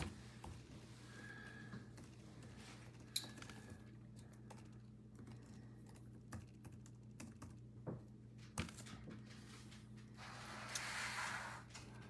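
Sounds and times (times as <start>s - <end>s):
low steady hum: 0.0s - 12.0s
computer keyboard typing: 1.9s - 7.7s.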